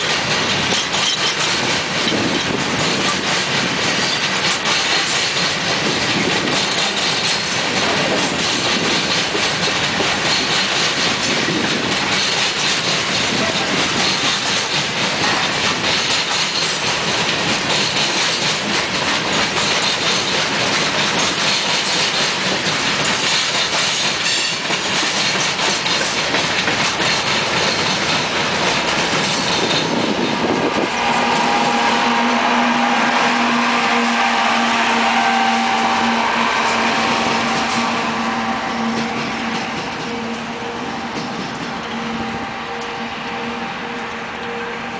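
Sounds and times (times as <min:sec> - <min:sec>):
train wheels clicking over rail: 0:00.0 - 0:40.4
diesel locomotive engine drone: 0:00.0 - 0:44.9.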